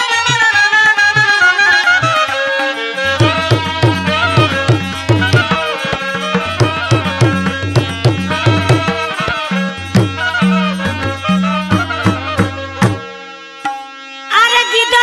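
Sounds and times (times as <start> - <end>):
folk melody: 0.0 - 15.0
hand drum rhythm: 3.0 - 13.9.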